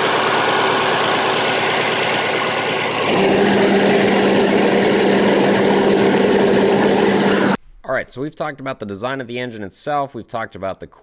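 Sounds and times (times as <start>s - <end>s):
cooling fan turning: 0.0s - 7.6s
diesel engine running: 0.0s - 7.6s.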